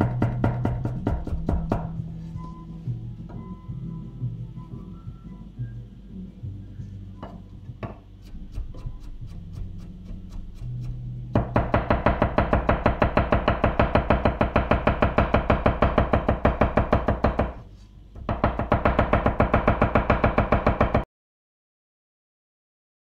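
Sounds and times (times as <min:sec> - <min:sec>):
knife rapidly chopping on wooden board: 0:00.2 - 0:01.9.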